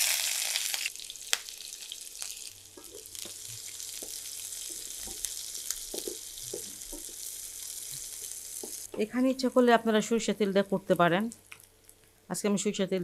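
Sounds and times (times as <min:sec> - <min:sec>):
onions sizzling in a frying pan: 0:00.0 - 0:09.7.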